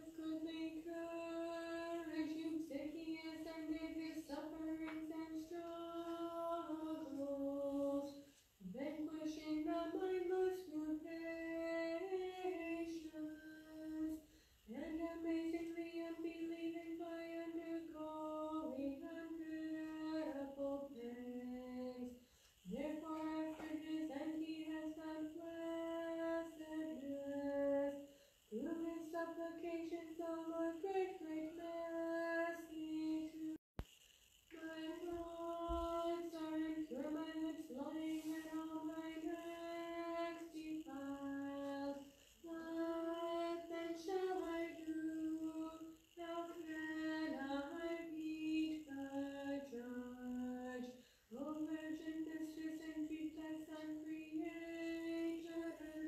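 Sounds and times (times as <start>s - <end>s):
woman chanting a hymn: 0.0s - 22.1s, 22.7s - 33.6s, 34.5s - 56.0s
short breaths: 14.2s - 14.7s.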